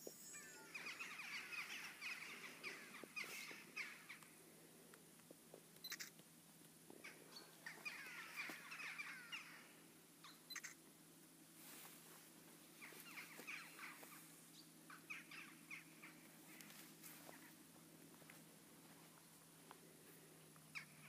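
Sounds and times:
flock of birds calling: 0.0s - 4.5s, 6.9s - 10.8s, 12.8s - 17.6s.

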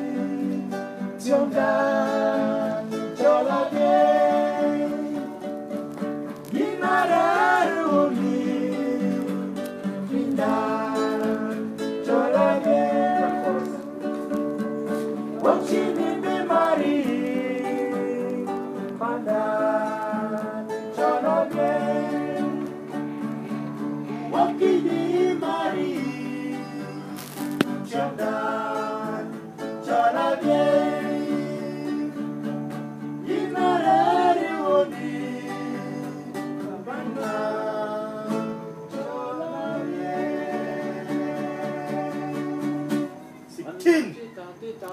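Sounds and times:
men singing: 0.0s - 5.7s, 6.4s - 14.3s, 14.9s - 43.2s
strummed acoustic guitar: 0.0s - 43.6s.

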